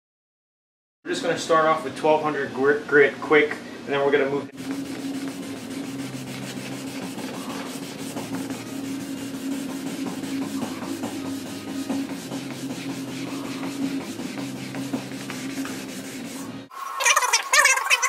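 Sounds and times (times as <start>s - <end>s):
sandpaper rubbing: 4.6s - 18.0s.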